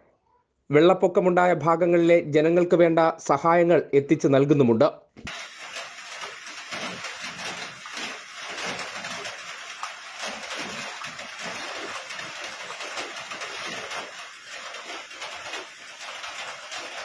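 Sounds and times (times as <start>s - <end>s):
steady rain falling: 5.3s - 17.0s.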